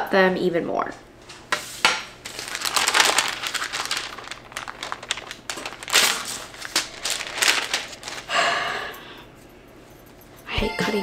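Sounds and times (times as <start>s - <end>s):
parchment paper crinkling: 2.2s - 8.3s.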